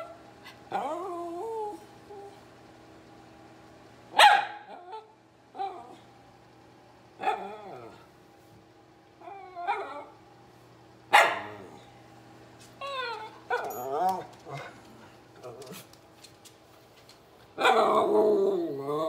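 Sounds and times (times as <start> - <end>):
dog whining: 0.4 - 2.4, 9.2 - 10.2, 12.8 - 14.7
dog barking: 4.1 - 4.8, 11.1 - 11.7.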